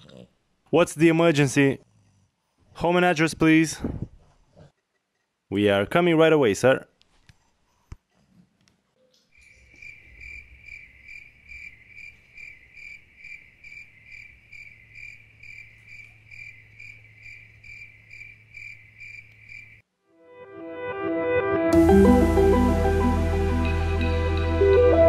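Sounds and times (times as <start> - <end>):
cricket chirping: 9.4 - 19.8.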